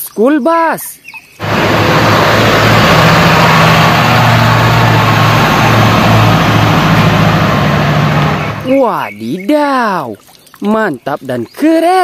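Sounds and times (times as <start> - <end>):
bus engine driving past: 1.4 - 8.7.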